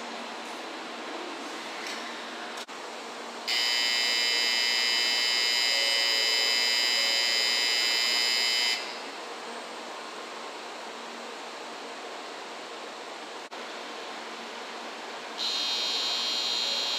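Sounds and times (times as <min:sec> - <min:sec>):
loud steady buzzer: 0:03.5 - 0:09.1, 0:15.4 - 0:16.9.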